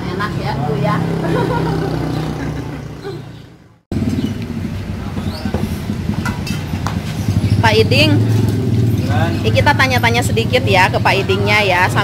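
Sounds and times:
street traffic: 0.0 - 12.0
vehicle engine running: 3.9 - 12.0.

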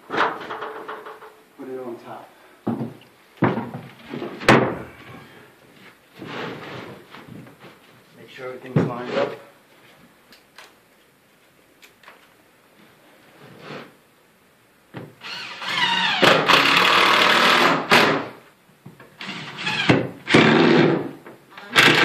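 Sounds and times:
cordless drill whining: 15.2 - 17.8.

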